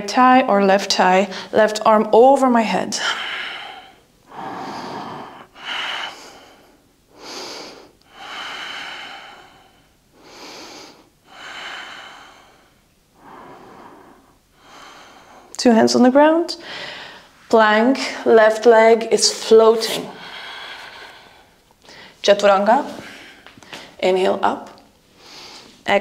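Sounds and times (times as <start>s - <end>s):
woman breathing deeply: 1.3s - 1.6s, 3.0s - 15.6s, 16.6s - 17.4s, 19.6s - 24.0s, 25.1s - 25.8s.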